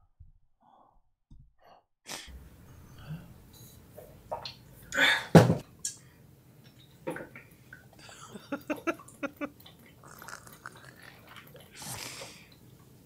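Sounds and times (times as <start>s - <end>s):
mouth noises: 8.0s - 12.5s
person breathing: 10.1s - 12.6s.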